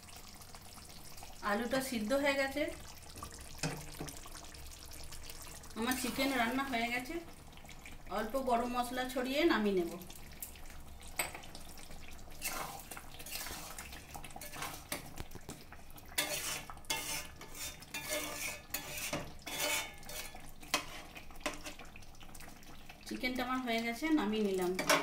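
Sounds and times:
metal spatula scraping a pot: 12.4s - 15.0s, 16.2s - 21.8s.

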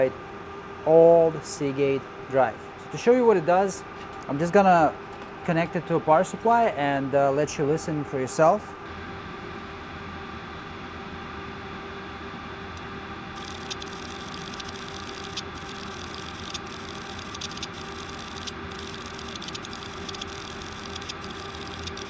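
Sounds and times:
hard drive humming: 8.8s - 22.0s
rapid irregular ticking: 13.4s - 22.0s.

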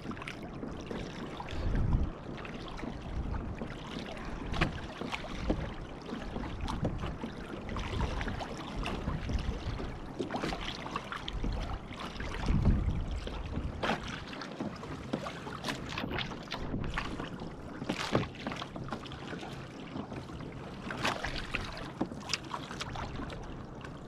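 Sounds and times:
wind rumbling on microphone: 0.0s - 14.8s, 15.8s - 18.3s
water splashing against hull: 0.0s - 24.0s.

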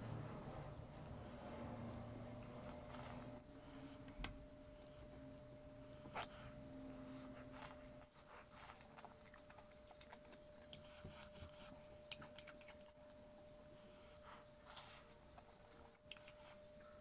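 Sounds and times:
eating sounds: 7.1s - 17.0s.

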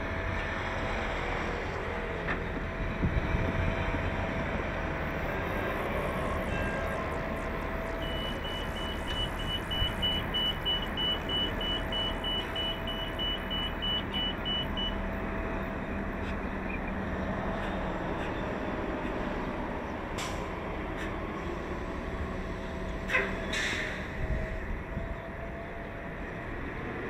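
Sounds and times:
bus running hum: 0.0s - 27.0s
short high warning beeps: 7.9s - 15.0s.

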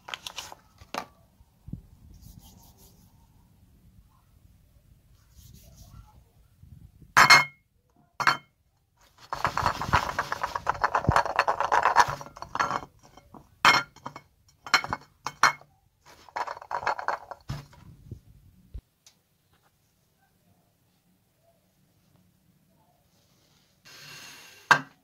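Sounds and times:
soap clinking on ceramic plate: 8.2s - 8.5s, 9.3s - 15.6s, 16.3s - 17.7s
soap scraping and rubbing: 9.2s - 13.2s.

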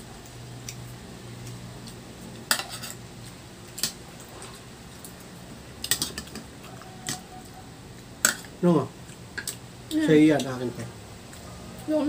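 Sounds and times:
cutlery clinking on plates: 2.5s - 3.0s, 5.9s - 7.3s.

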